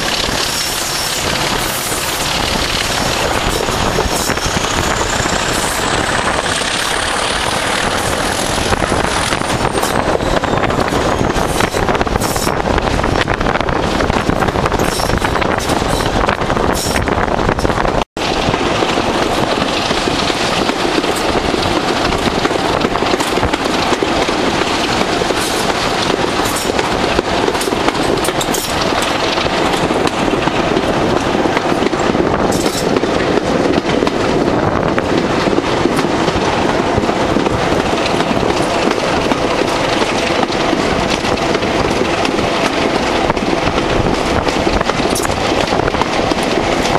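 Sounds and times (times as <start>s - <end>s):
wheels clicking over rail joints: 13.2s - 46.9s.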